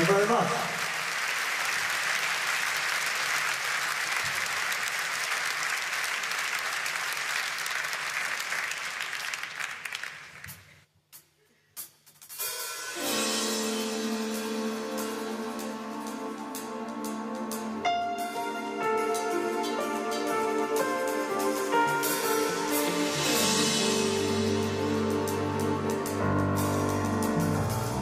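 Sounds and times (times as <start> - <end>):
audience applauding: 0.0 - 10.8
band playing: 12.4 - 28.0.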